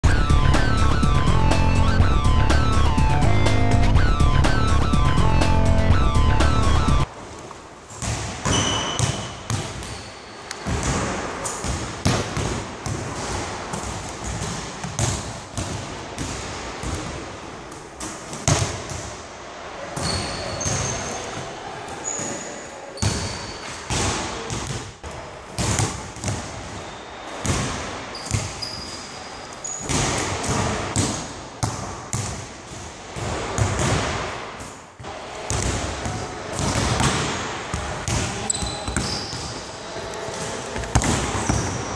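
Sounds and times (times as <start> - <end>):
shoe squeaks: 8.4 - 10.5, 20.0 - 21.3, 22.0 - 23.8, 28.1 - 29.9, 38.4 - 39.6
basketballs bouncing on wooden floor: 35.5 - 39.6.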